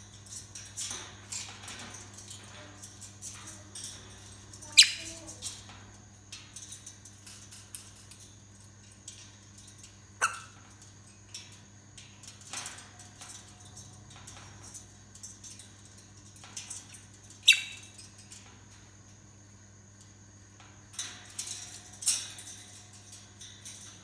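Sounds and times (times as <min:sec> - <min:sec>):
parrots clicking and squeaking: 0:00.2 - 0:05.7, 0:10.2 - 0:10.7, 0:16.7 - 0:18.1
parrot sharp calls: 0:10.2 - 0:10.5, 0:17.5 - 0:17.8.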